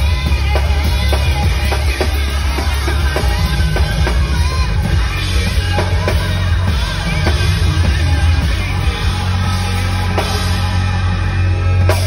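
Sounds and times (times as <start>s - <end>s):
drums and cymbals: 0.0s - 12.0s
loud backing music with bass: 0.0s - 12.0s.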